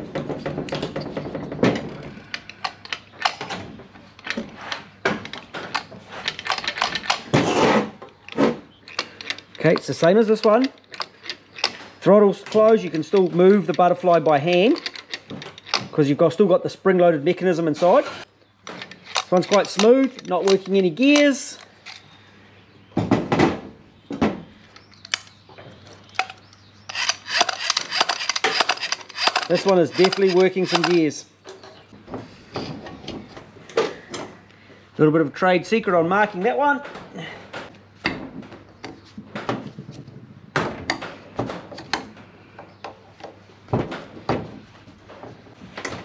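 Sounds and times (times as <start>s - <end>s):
metallic gear clicking: 26.9s - 31.1s.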